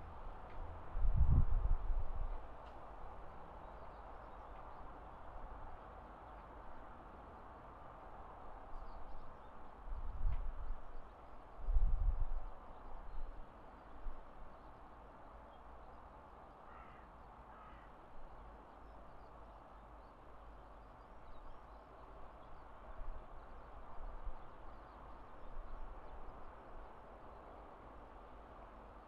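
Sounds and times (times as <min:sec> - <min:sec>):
bird calling: 0:16.7 - 0:17.9.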